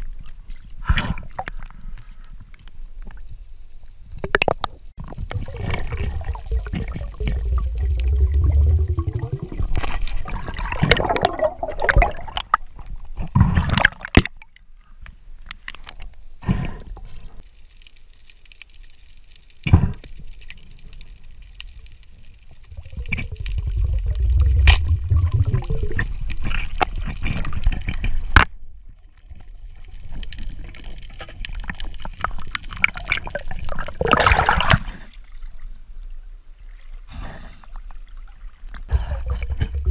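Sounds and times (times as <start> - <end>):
water gurgling and rushing: 5.0 - 12.7, 22.5 - 27.7, 31.5 - 35.0, 38.9 - 39.9.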